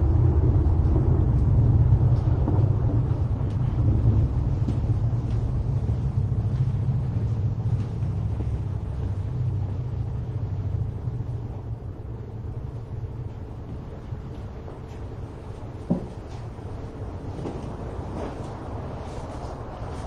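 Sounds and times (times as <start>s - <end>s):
low rumble: 0.0s - 20.0s.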